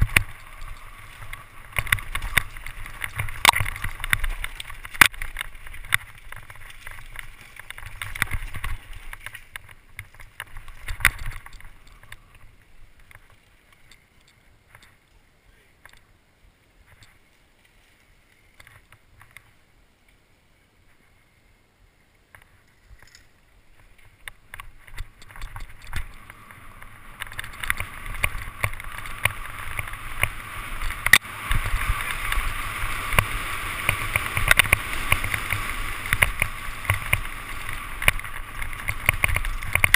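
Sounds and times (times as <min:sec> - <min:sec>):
bike rattling and knocking: 0:00.0 - 0:14.0, 0:22.4 - 0:39.9
bike tyres on dirt and stones: 0:00.0 - 0:39.9.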